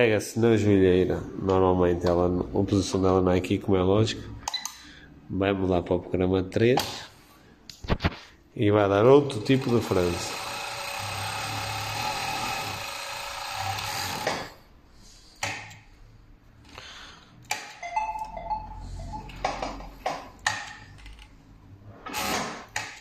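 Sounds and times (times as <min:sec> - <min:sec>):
overlock sewing machine stitching: 0:09.3 - 0:14.6.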